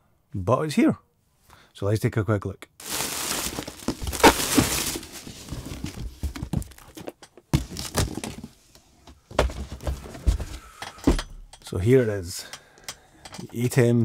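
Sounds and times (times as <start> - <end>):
cardboard rustling: 2.8 - 10.6
cardboard cracks: 3.0 - 8.5
cardboard boxes knocking and scraping: 3.3 - 10.6.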